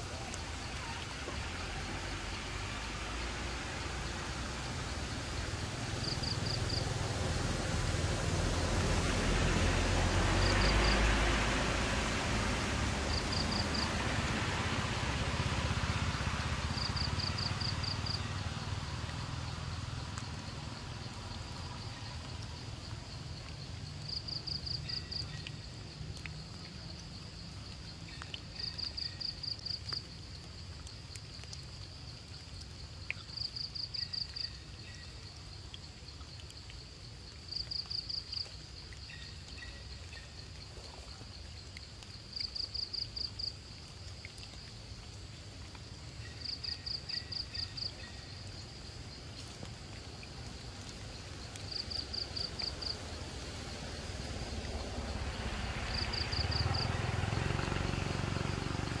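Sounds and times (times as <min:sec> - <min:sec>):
insect chirping: 0:00.0 - 0:59.0
outdoor hiss: 0:00.0 - 0:59.0.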